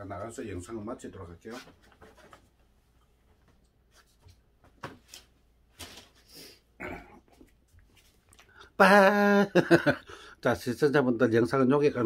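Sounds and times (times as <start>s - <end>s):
faint knocks and rustles: 1.4s - 6.2s.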